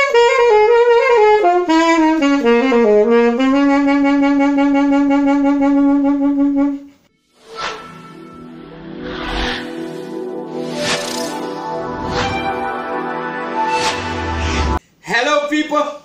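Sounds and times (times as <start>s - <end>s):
saxophone playing: 0.0s - 7.0s
brief swish: 7.4s - 8.2s, 9.0s - 12.6s, 13.7s - 14.8s.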